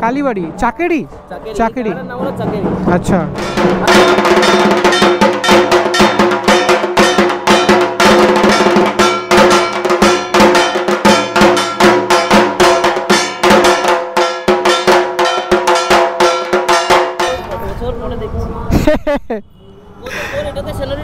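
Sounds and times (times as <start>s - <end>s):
ringing metal percussion: 1.6s - 17.8s
fast drumming: 1.7s - 17.6s.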